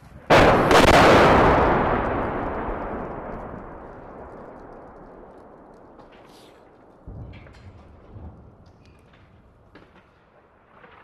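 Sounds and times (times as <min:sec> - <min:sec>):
rolling rumble: 0:00.0 - 0:11.0
explosion blasts: 0:00.3 - 0:08.5.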